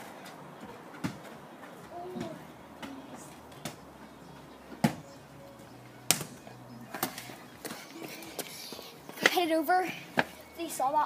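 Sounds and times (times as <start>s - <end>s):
football being kicked: 1.0s - 1.4s, 4.7s - 5.1s.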